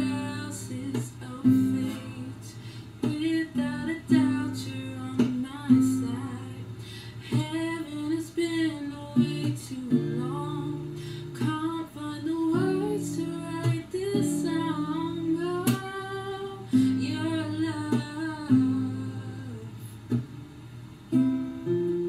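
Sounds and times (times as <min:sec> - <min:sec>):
woman singing softly: 0:00.0 - 0:20.2
acoustic guitar playing: 0:00.0 - 0:22.0.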